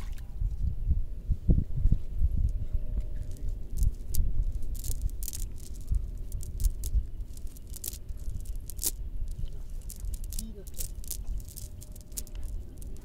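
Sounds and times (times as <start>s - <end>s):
sharp clicks and rattles: 3.2s - 13.0s.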